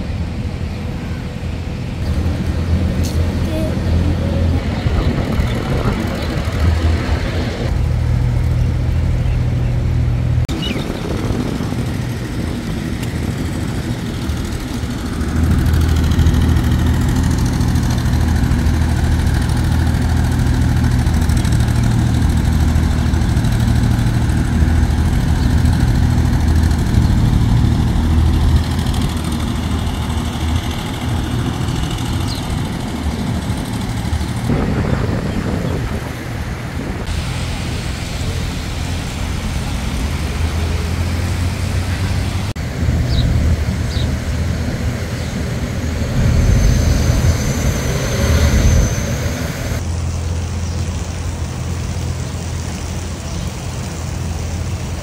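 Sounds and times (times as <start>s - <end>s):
road traffic engine rumble: 0.0s - 55.0s.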